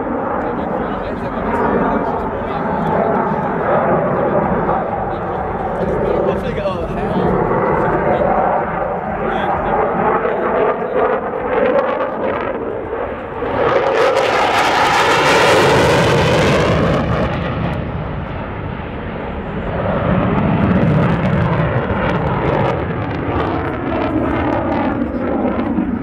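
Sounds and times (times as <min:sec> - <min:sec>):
fighter jet roaring overhead: 0:00.0 - 0:26.0.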